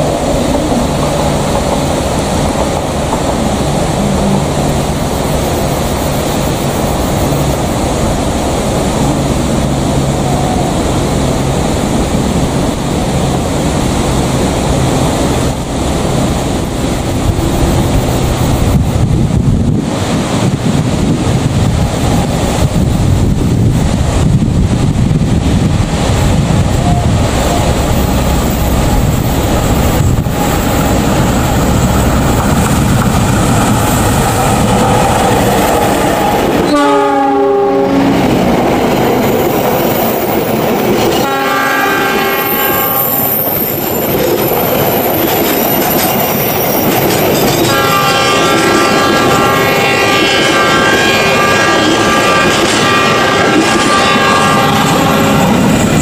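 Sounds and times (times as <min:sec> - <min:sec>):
locomotive engine running: 0:00.0 - 0:20.1, 0:20.9 - 0:36.8
train horn blast: 0:26.8 - 0:27.8, 0:36.3 - 0:38.3, 0:41.1 - 0:43.2, 0:47.6 - 0:55.7
wheels clicking over rail joints: 0:43.6 - 0:48.2.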